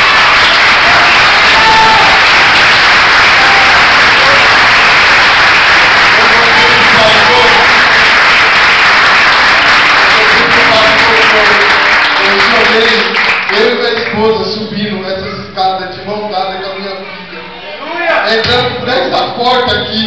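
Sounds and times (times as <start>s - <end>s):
congregation clapping: 0.0s - 14.4s.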